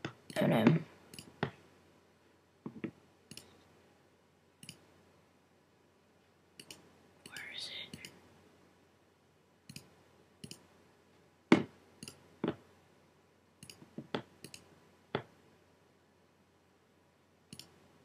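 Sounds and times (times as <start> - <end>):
computer mouse clicks: 1.1 - 1.5, 2.7 - 3.6, 4.6 - 4.9, 6.6 - 8.2, 9.7 - 10.7, 12.0 - 12.6, 13.6 - 15.3, 17.5 - 17.8.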